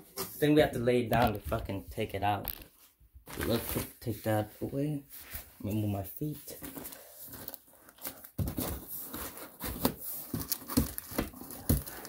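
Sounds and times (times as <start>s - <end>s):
plastic wrapping rustling: 2.3s - 4.5s, 5.2s - 12.0s.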